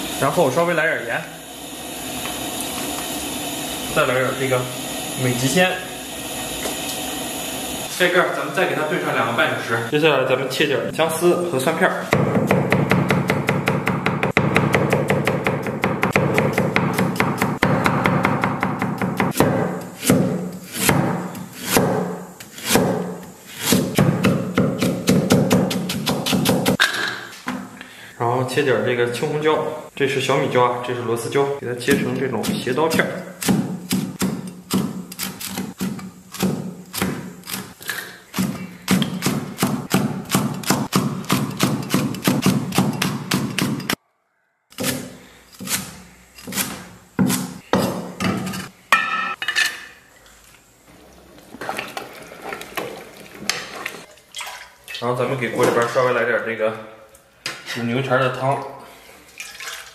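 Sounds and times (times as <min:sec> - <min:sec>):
cleaver chopping on wooden block: 0:12.2 - 0:26.8, 0:31.9 - 0:37.3, 0:38.4 - 0:43.9.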